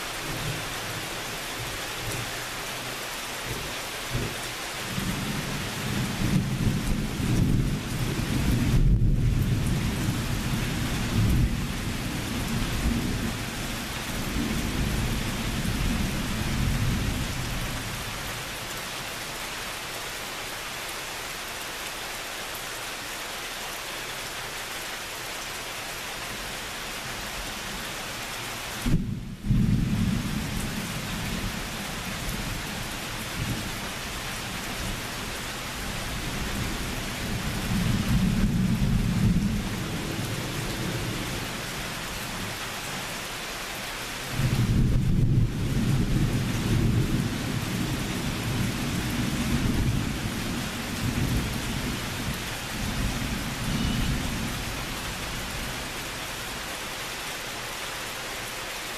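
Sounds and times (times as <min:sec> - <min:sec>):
rain hissing: 0:00.0 - 0:58.9
rolling thunder: 0:28.8 - 0:30.9, 0:44.4 - 0:52.0.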